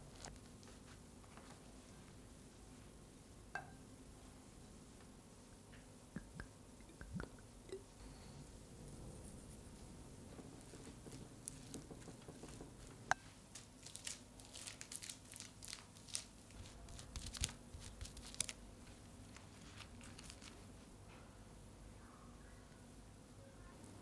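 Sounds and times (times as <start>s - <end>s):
rice pressed on seaweed crackling: 8.8s - 20.8s.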